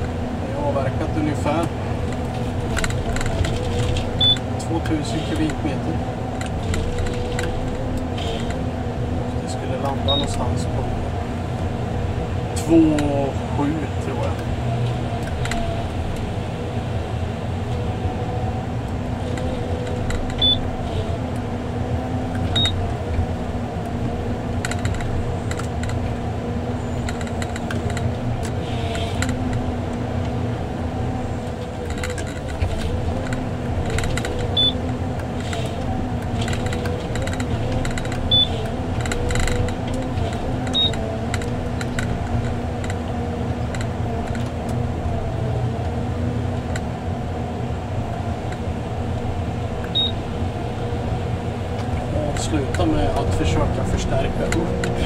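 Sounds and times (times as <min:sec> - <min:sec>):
diesel engine and hydraulics running: 0:00.0 - 0:55.0
short high beeps: 0:38.3 - 0:38.5, 0:50.0 - 0:50.2.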